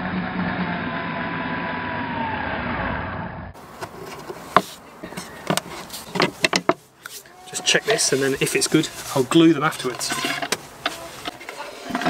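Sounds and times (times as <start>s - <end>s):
wooden dowels clicking into holes: 3.8s - 7.2s.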